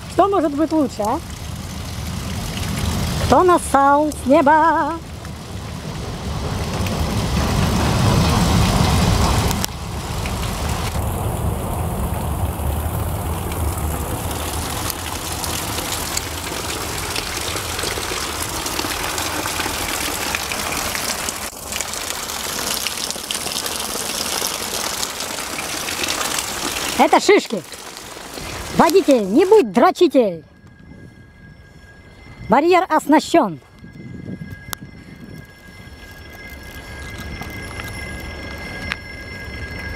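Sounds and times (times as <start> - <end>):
water gushing over gravel: 0.0 - 29.8
low rumble: 0.9 - 21.4, 33.6 - 39.9.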